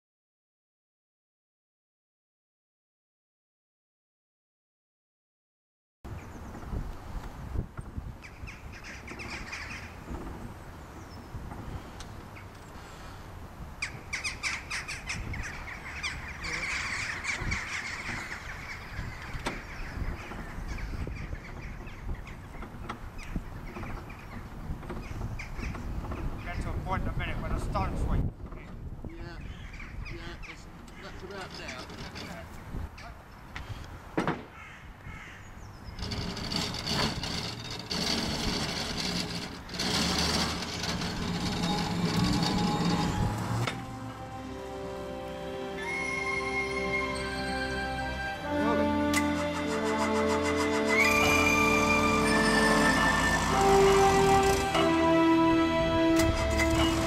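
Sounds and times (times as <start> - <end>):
crows cawing: 29.4 - 30.0, 34.5 - 35.5
model train wheels rumbling on track: 35.9 - 43.9, 49.2 - 57.0.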